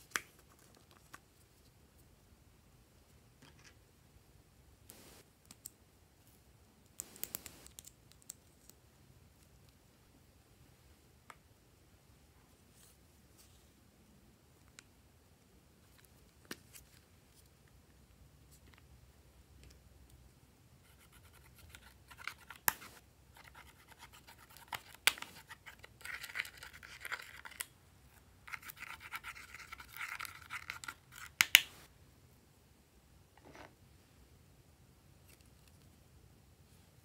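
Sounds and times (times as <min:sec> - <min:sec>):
spatula scraping eyeshadow: 0:28.5 - 0:31.4.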